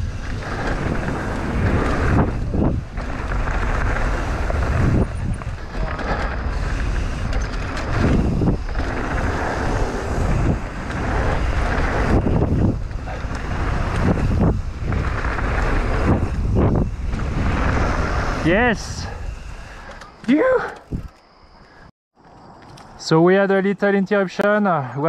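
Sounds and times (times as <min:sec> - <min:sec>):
wind buffeting microphone: 0:00.0 - 0:21.2
bike tyres rolling on dirt: 0:00.0 - 0:23.2.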